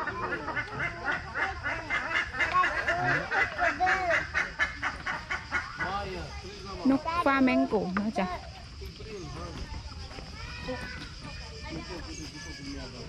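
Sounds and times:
flamingos honking: 0.0s - 6.1s.

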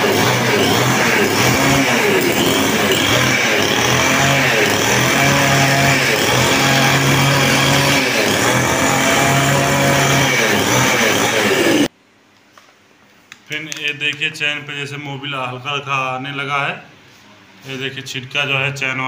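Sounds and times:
chainsaw revving: 0.0s - 11.9s.

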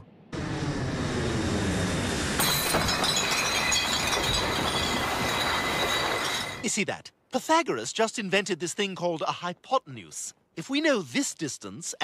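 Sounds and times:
jet engines running: 0.0s - 2.5s.

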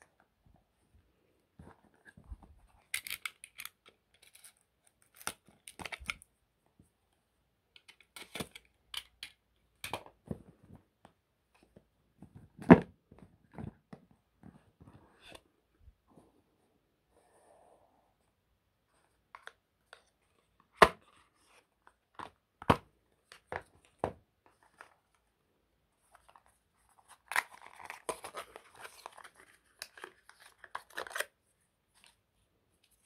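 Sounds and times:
packaging crinkling and tearing: 27.2s - 31.3s.

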